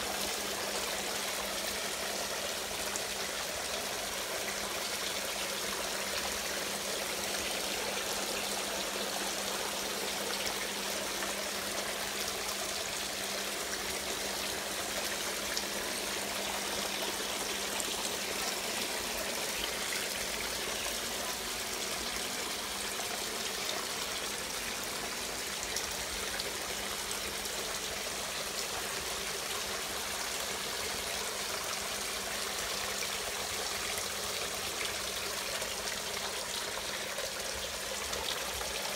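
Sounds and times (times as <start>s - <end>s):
water running and trickling: 0.0s - 38.9s.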